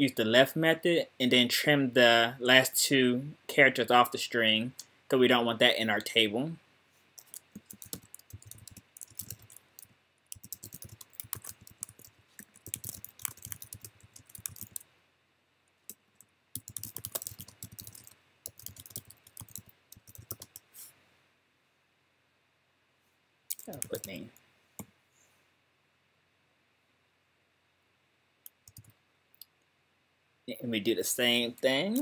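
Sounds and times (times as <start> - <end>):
keyboard typing: 7.2 - 14.8, 15.9 - 20.7, 23.5 - 24.4, 28.5 - 29.0.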